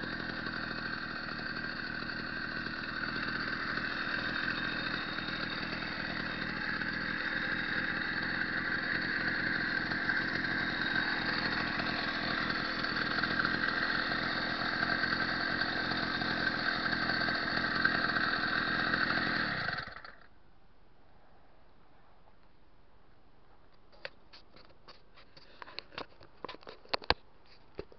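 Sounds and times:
two-stroke engine idling: 0:00.0 - 0:20.3.

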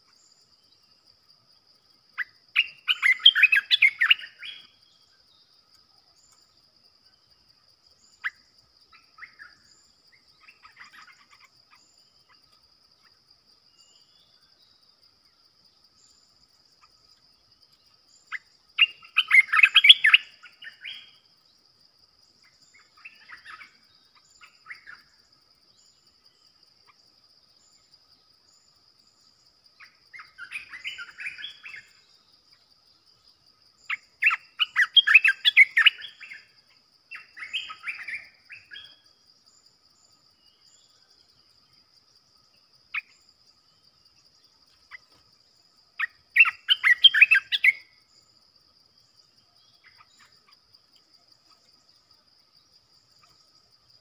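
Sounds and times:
high insect whine: 0:00.0 - 0:54.0
bird singing chattering notes: 0:46.0 - 0:47.8.

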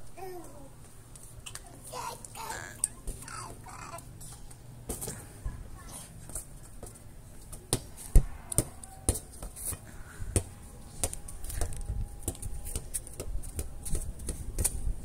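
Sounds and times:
plastic ball bouncing on concrete: 0:10.3 - 0:14.9.

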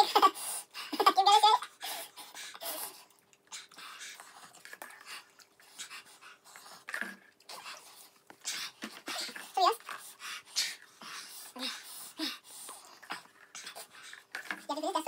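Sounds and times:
child laughing: 0:00.0 - 0:01.7
hissy panting breaths: 0:00.0 - 0:15.0
eating noises: 0:01.6 - 0:15.0.

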